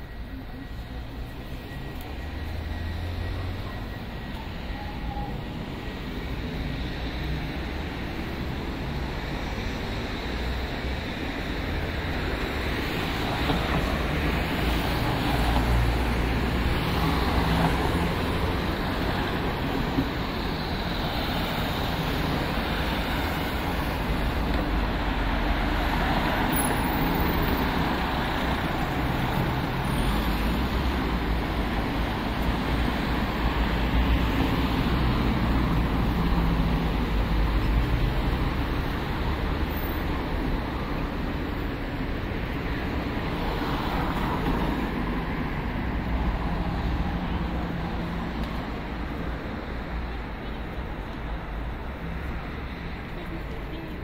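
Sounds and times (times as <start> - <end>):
passing cars and heavy vehicles: 0.0 - 54.0.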